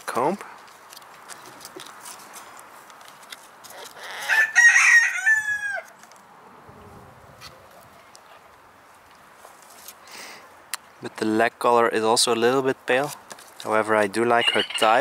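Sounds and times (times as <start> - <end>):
rooster crowing: 4.0 - 5.9, 14.4 - 15.0.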